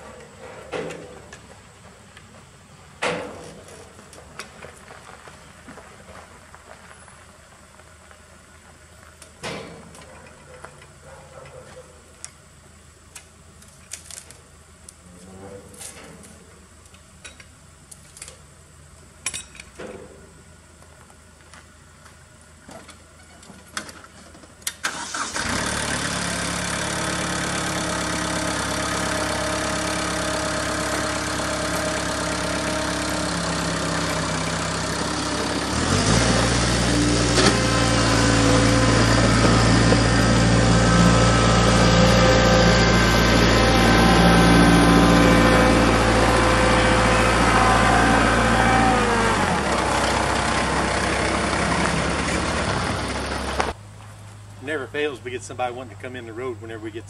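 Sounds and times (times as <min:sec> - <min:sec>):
diesel tractor engine running: 0:24.6 - 0:57.0.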